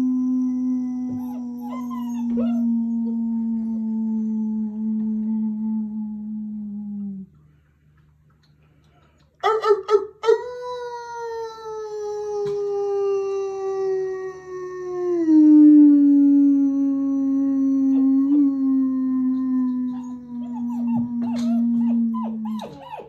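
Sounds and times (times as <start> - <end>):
person howling: 10.8 - 22.5
puppies howling and yipping: 19.8 - 23.0.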